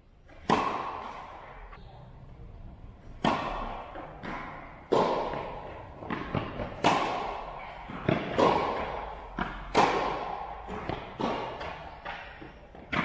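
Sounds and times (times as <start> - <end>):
racket hitting tennis ball: 0.3 - 1.8, 3.0 - 13.0
tennis ball bouncing: 0.3 - 1.8, 3.0 - 13.0.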